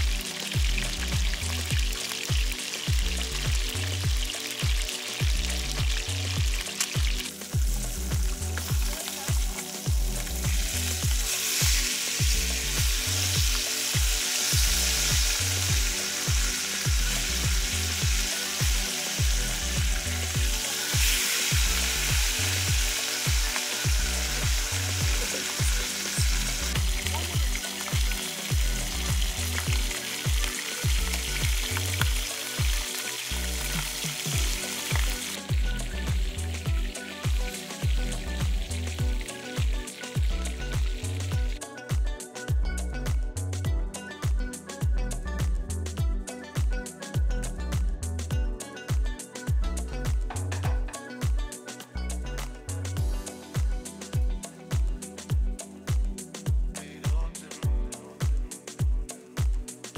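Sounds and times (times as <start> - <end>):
fish sizzling in hot oil: 0.0 - 41.6
background music with low beat: 0.0 - 59.9.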